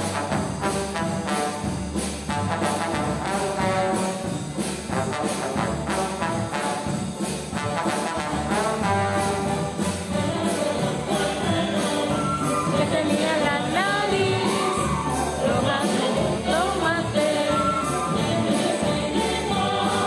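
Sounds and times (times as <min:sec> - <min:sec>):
orchestra strings and brass: 0:00.0 - 0:20.0.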